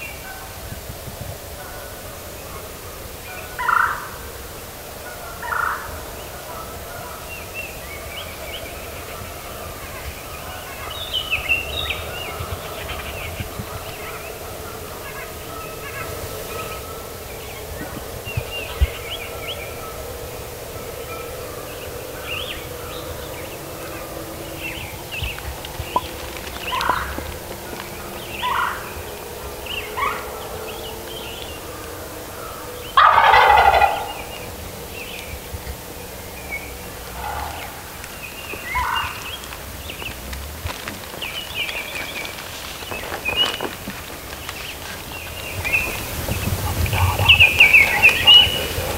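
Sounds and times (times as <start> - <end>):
songbirds chirping: 0.0 - 48.9
turkey gobbling: 3.5 - 4.2, 5.0 - 7.2, 20.9 - 29.1, 31.1 - 39.6, 45.4 - 48.9.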